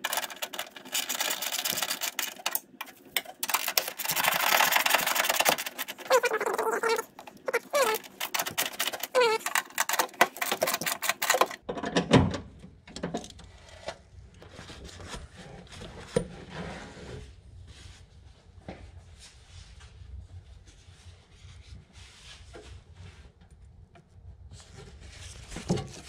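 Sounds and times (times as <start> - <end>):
handling sounds: 0.0 - 11.6.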